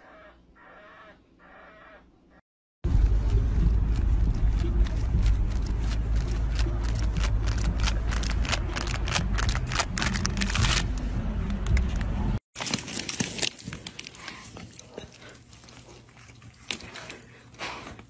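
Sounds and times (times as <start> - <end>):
low outdoor rumble: 2.8 - 12.4.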